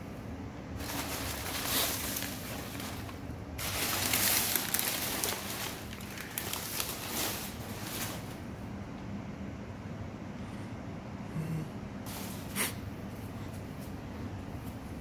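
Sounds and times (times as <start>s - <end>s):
packing paper crinkling: 0.8s - 8.5s.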